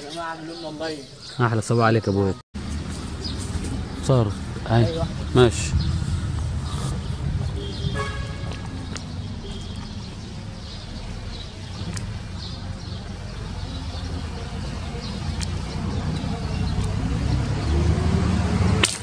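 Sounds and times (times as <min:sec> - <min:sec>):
distant traffic rumble: 0:00.0 - 0:19.0
horn-like toot: 0:07.6 - 0:08.5.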